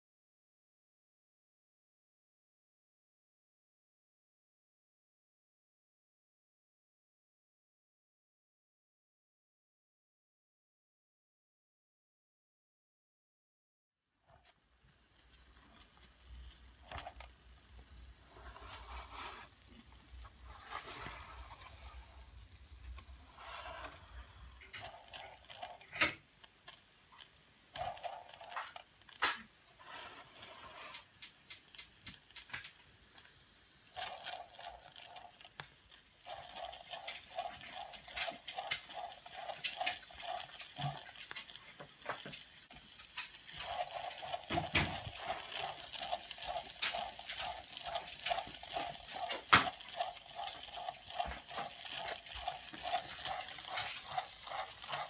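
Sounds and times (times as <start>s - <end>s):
sputtering steam hiss: 14.4s - 55.0s
toy steam engine chuffing: 14.4s - 55.0s.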